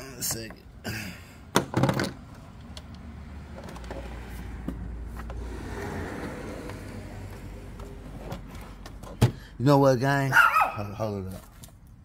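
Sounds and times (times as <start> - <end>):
camera handling knocks and rattles: 1.5 - 2.9.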